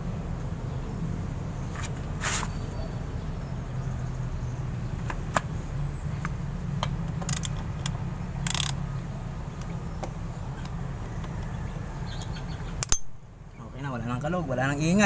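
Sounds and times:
ratchet wrench clicking: 7.2 - 8.8
ratchet wrench rasps: 7.2 - 8.8.

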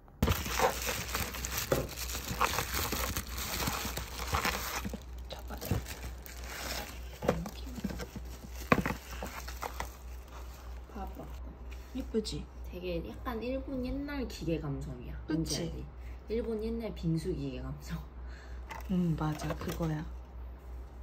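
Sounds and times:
low steady hum: 0.0 - 21.0
bubble wrap crinkling: 0.2 - 11.4.

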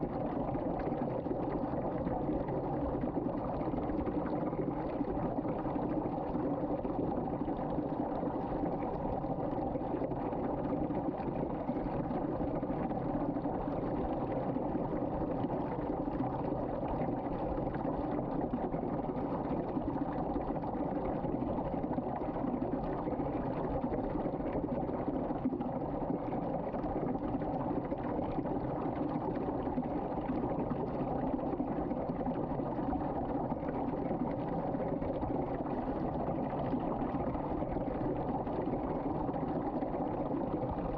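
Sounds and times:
water swirling down a drain: 0.0 - 40.9.

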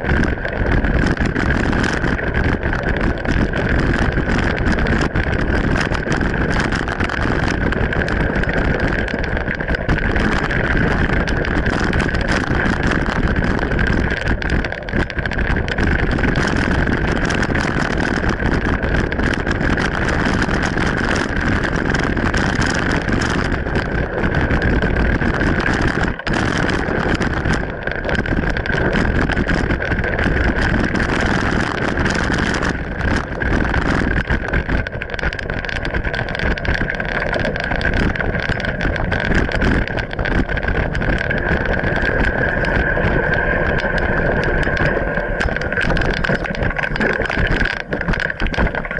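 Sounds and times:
bike knocks and rattles: 0.0 - 48.9
bike tyres rumbling on dirt: 0.0 - 48.9
wind noise on microphone: 0.0 - 48.9
steady high hum: 37.8 - 48.9.

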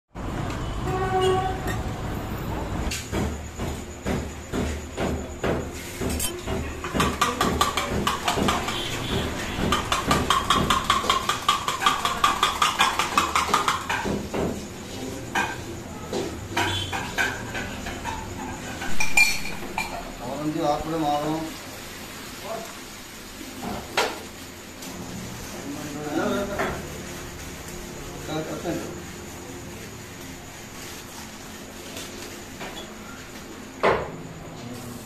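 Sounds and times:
street noise: 0.1 - 20.5.

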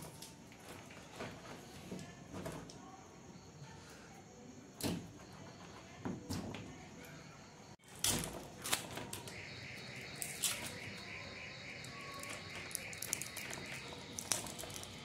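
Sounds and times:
faint high chirping: 8.9 - 15.0.

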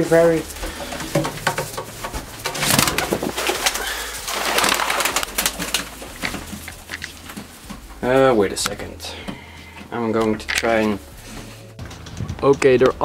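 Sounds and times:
wing flapping: 0.0 - 8.1
pigeons scuffling: 0.0 - 12.6
pigeons cooing: 0.5 - 8.0.

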